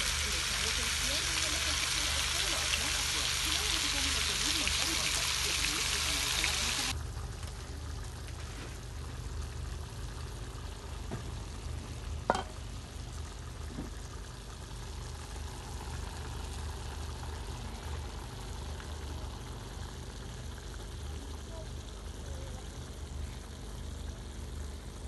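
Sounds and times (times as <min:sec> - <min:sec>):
low steady hum: 0:00.0 - 0:25.0
stew cooking in a pot: 0:00.0 - 0:25.0.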